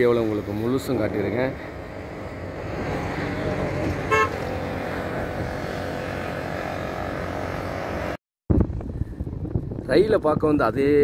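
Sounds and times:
passing vehicles rumbling: 0.0s - 9.8s
wind: 0.0s - 11.0s
short horn toot: 4.1s - 4.4s.

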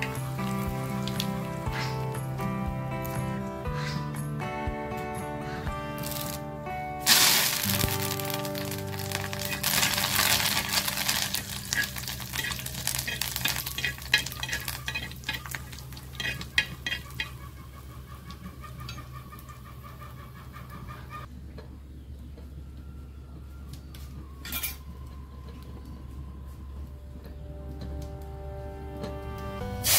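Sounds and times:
leaves sizzling in hot oil: 0.0s - 2.2s, 6.0s - 6.4s, 7.0s - 17.3s
metal spoon scraping pan: 11.7s - 17.4s.

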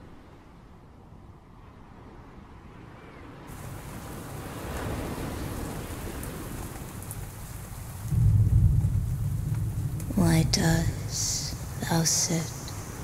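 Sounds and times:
rain falling: 3.5s - 13.0s
raindrop ticks: 3.6s - 13.0s
deep rumble: 8.0s - 13.0s.

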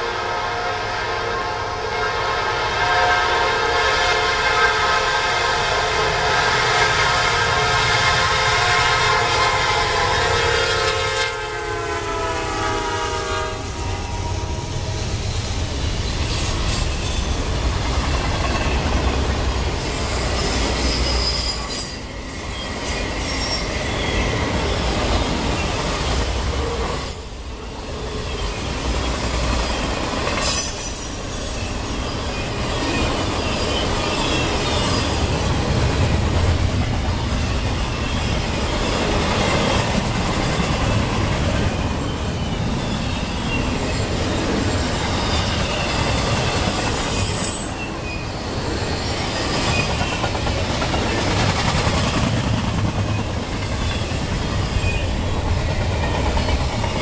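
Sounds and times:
wheels rumbling and clattering on rail: 4.1s - 57.0s
high-pitched wheel squeal: 19.8s - 35.4s, 42.4s - 50.3s.

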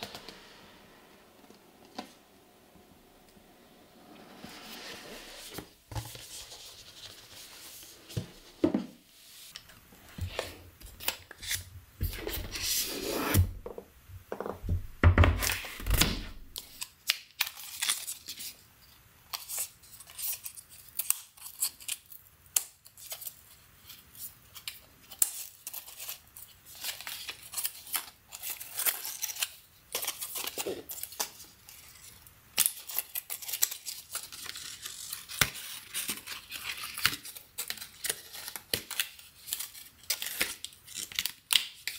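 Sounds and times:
cardboard sliding: 0.0s - 10.7s, 11.4s - 13.8s
paper rustling and tearing: 23.0s - 41.9s.

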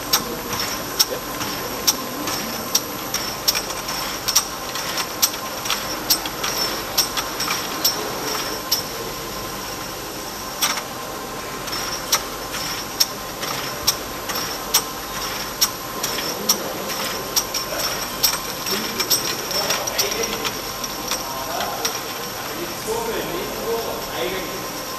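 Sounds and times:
sharp machine clicks: 0.0s - 9.0s, 10.6s - 10.9s, 11.7s - 22.7s
machine running with whine: 0.0s - 24.9s.

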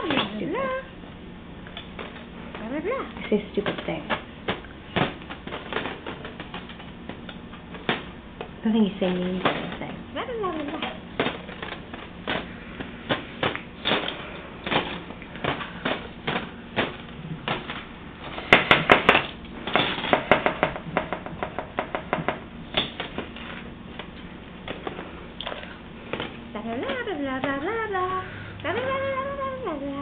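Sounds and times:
taps and clacks of hard objects: 13.1s - 24.1s.

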